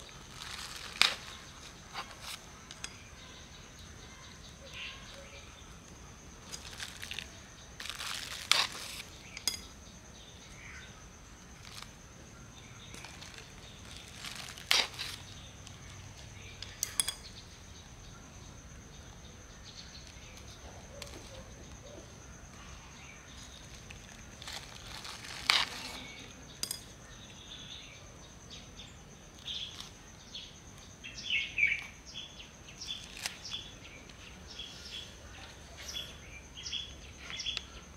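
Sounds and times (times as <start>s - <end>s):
small birds chirping: 0.0s - 37.9s
plastic bag crinkling: 0.2s - 2.4s, 6.4s - 9.0s, 13.0s - 15.3s
hands pressing potting soil: 12.9s - 15.8s.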